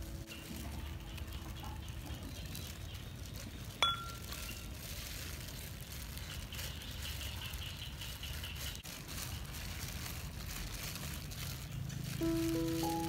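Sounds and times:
music: 0.0s - 2.1s, 12.1s - 13.0s
dough squishing: 0.0s - 13.0s
plastic gloves rustling and crinkling: 0.0s - 13.0s.

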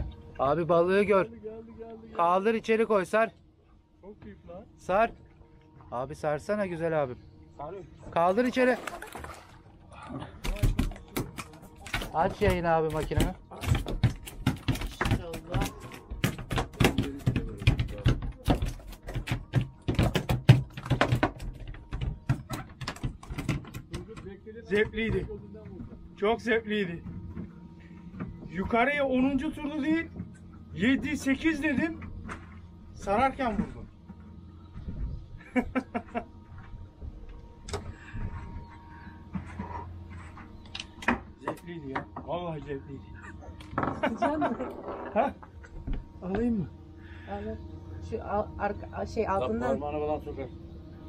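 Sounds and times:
boat engine idling: 42.2s - 51.0s.

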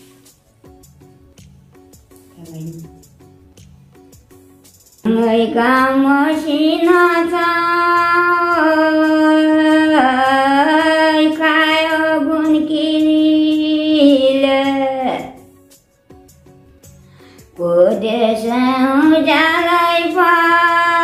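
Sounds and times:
elderly woman singing unaccompanied: 5.1s - 15.4s, 17.6s - 21.0s.

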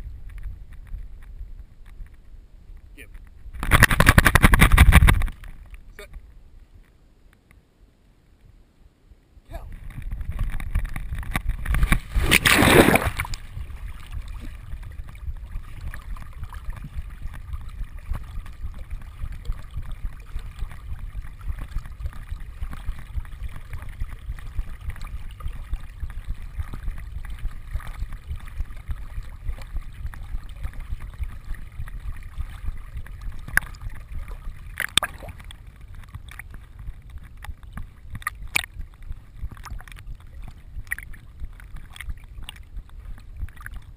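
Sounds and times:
water sloshing and gurgling: 0.0s - 6.9s, 9.5s - 43.9s
dog splashing into water: 11.6s - 35.4s.

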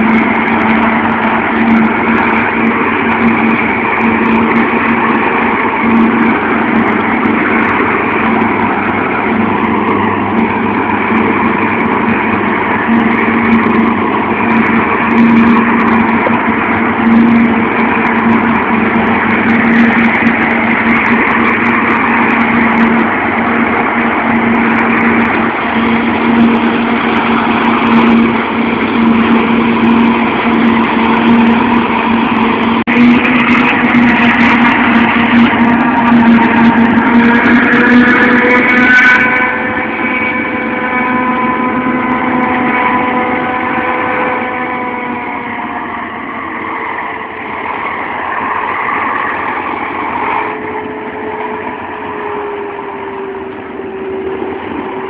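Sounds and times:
harvester and tractor engines droning: 0.0s - 55.0s.

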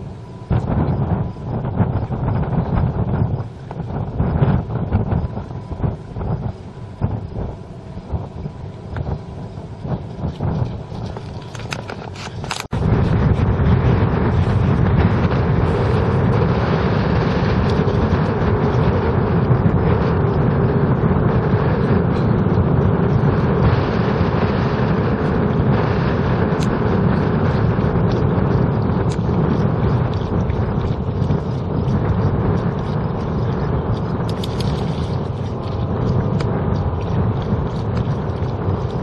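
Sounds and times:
flowing canal water: 0.0s - 39.0s
gusty wind noise: 0.0s - 39.0s
small crackles: 10.2s - 12.8s, 26.5s - 39.0s.

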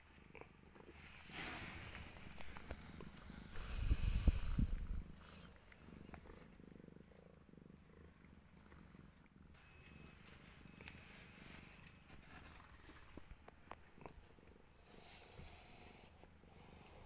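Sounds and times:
cat purring faintly: 0.0s - 17.0s.

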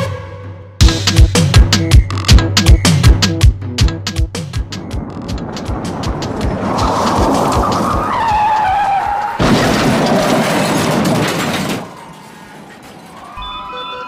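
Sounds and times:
car tyres screeching: 4.8s - 13.4s
crashing debris: 4.8s - 13.4s
loud car crash: 4.9s - 13.6s.

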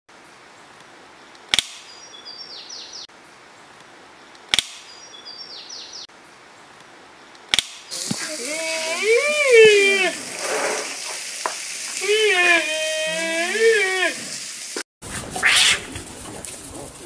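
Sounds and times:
sharp snap: 1.4s - 1.9s, 4.4s - 5.0s, 7.4s - 8.3s
high bird chirps: 4.8s - 6.1s
steady hiss: 7.7s - 14.8s.

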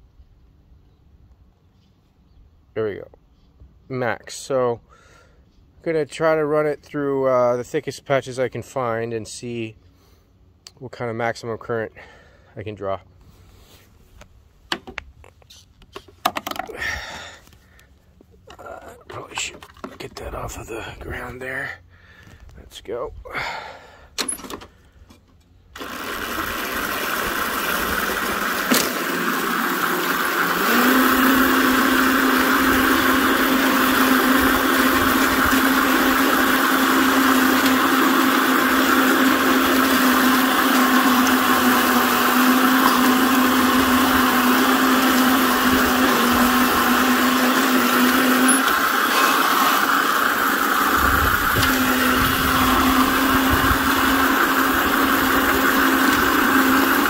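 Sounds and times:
electric reel mower whirring: 14.8s - 22.5s, 23.4s - 57.0s.

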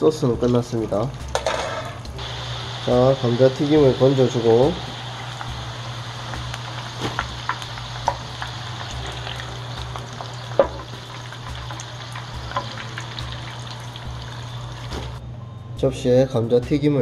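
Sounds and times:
fries sizzling in oil: 0.1s - 15.2s.

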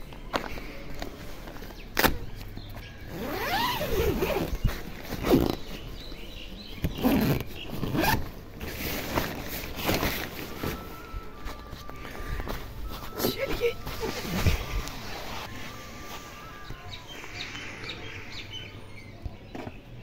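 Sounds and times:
nylon tent fabric rustling: 3.0s - 16.7s
tent zipper being pulled: 3.1s - 5.8s, 6.8s - 10.0s.

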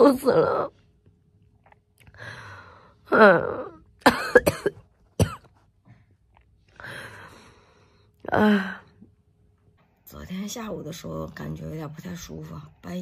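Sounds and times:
woman coughing: 4.0s - 5.6s.

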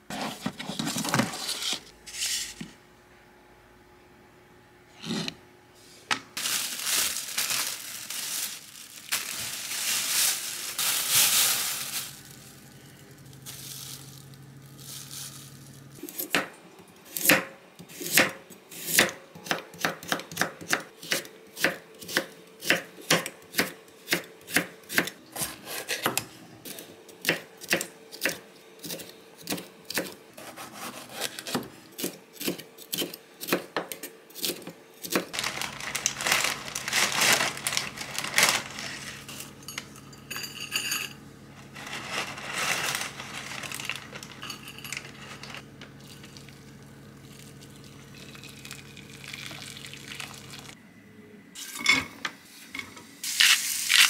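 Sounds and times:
plastic packaging crinkling: 6.4s - 16.0s, 35.3s - 39.4s, 41.6s - 46.5s.

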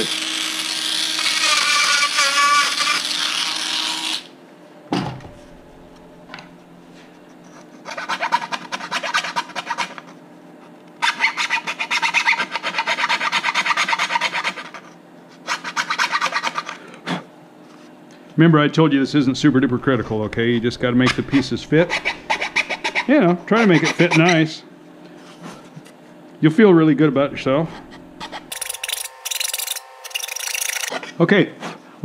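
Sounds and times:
file rasping in plywood: 0.0s - 4.3s, 7.6s - 10.2s, 11.0s - 16.8s, 21.8s - 24.5s
rotary tool whining: 27.5s - 31.0s.

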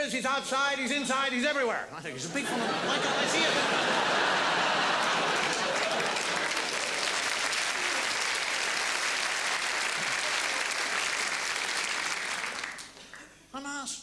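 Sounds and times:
large audience applauding: 2.8s - 13.3s.

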